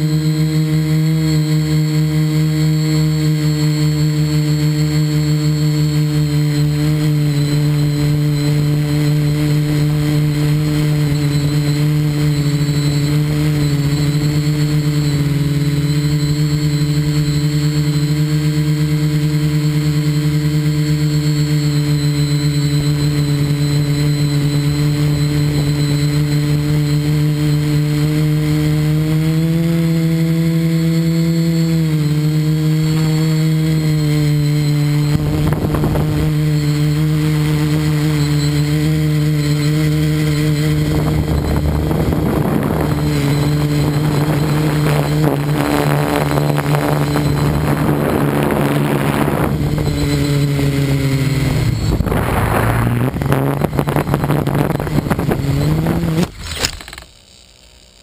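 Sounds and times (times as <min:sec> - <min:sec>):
model aircraft motor humming: 0:00.0 - 0:58.0
gusts of rushing air: 0:51.4 - 0:55.5.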